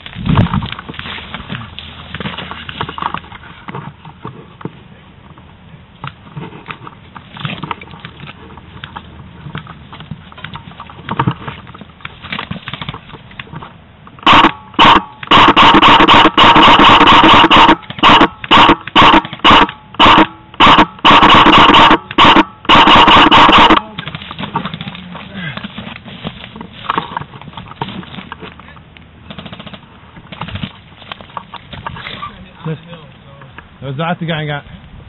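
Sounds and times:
rustling and handling noise: 0.0s - 14.2s, 23.7s - 33.8s
airsoft gun full-auto bursts: 14.2s - 24.2s, 29.3s - 29.8s.

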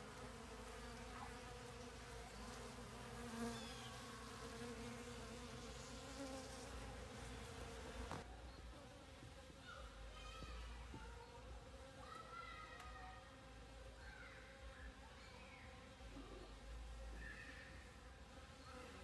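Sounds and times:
bees buzzing: 0.0s - 8.3s.

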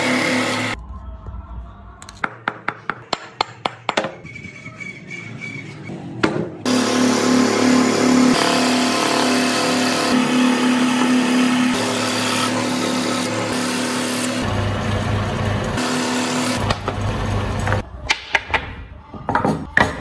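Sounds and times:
scroll saw cutting wood: 0.0s - 0.8s, 6.6s - 14.5s, 15.7s - 17.1s.

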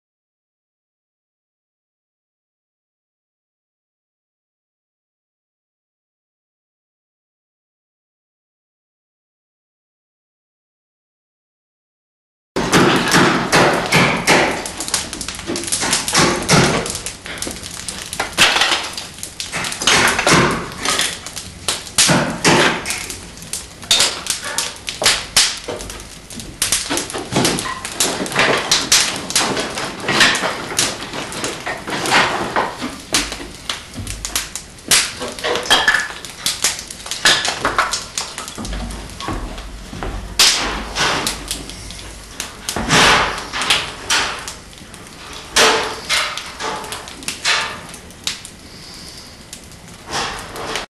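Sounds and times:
wood fire crackling: 12.6s - 50.9s.

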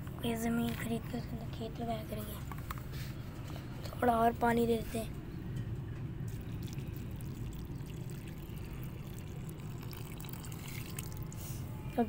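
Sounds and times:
water pouring and splashing: 6.3s - 11.5s.

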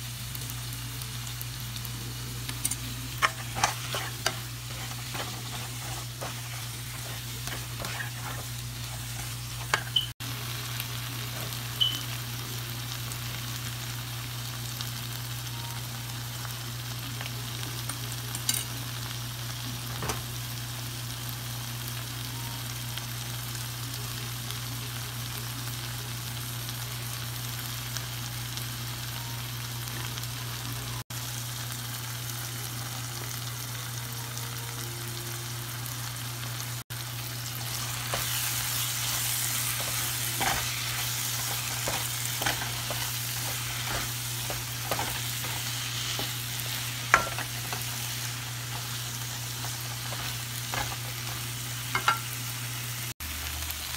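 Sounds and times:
vegetables sizzling in oil: 0.0s - 53.9s
plastic spoon scraping a pan: 3.2s - 9.9s.

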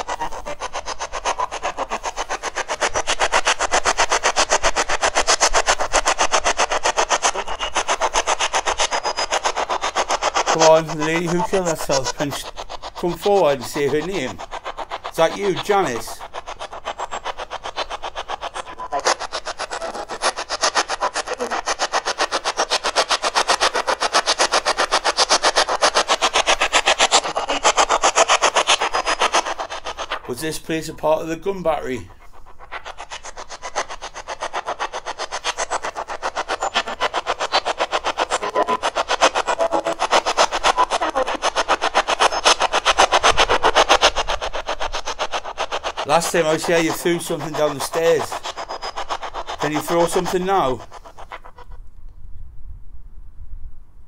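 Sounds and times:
radio scanner static chopping: 0.0s - 32.3s, 35.1s - 43.8s, 45.9s - 51.7s
radio scanner chopping static: 10.5s - 16.4s, 18.4s - 22.9s, 36.5s - 42.6s, 49.6s - 50.8s.

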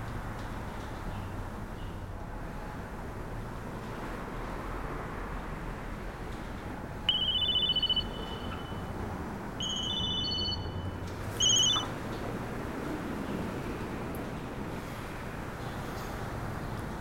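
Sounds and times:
phone alert beeping melody: 7.1s - 8.9s, 9.6s - 11.9s.

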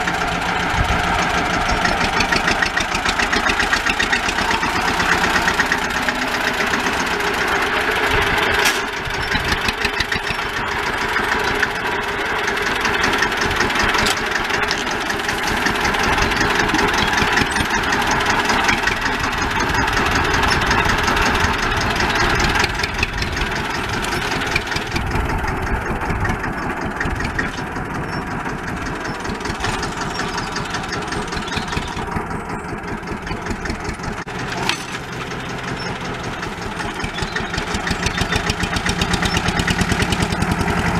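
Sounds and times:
tractor diesel engine under load: 0.0s - 40.9s.

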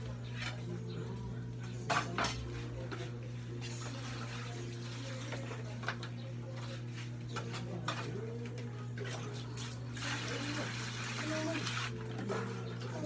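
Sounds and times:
dishes clinking: 1.7s - 3.1s
water sloshing and splashing: 9.0s - 13.0s.

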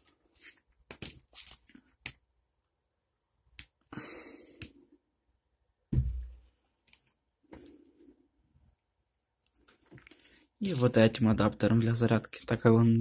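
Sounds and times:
heavy thump on table: 5.9s - 6.4s.

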